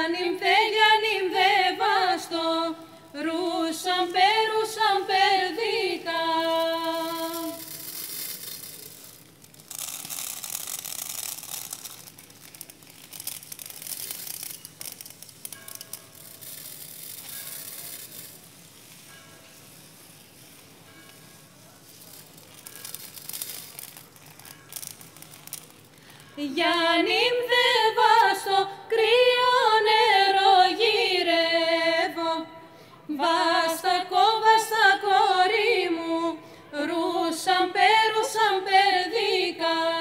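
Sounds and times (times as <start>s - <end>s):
women singing a cappella: 0.0s - 7.8s, 26.4s - 40.0s
rustling crackling noise: 0.4s - 32.1s.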